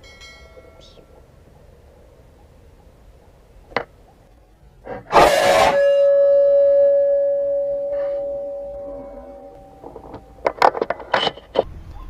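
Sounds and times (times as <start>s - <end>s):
long ringing tone: 5.2s - 10.6s.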